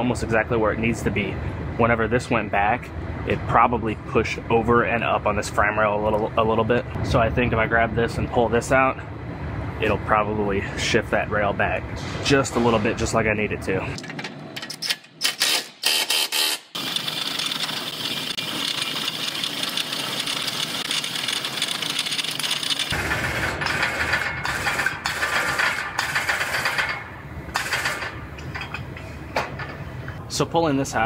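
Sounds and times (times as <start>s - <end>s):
hydraulic pulling tower running: 13.9s - 29.8s
power tool bursts: 15.2s - 18.0s.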